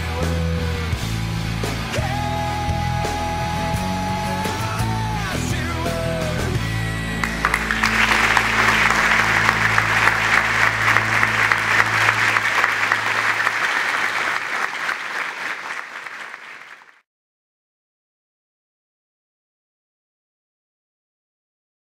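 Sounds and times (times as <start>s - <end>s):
background music: 0.0s - 14.8s
group applause: 7.2s - 17.0s.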